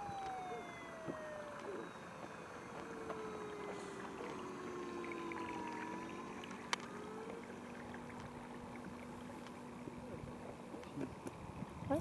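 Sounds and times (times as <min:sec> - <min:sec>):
model boat motor hum: 0:00.0 - 0:12.0
water and outdoor noise: 0:00.0 - 0:12.0.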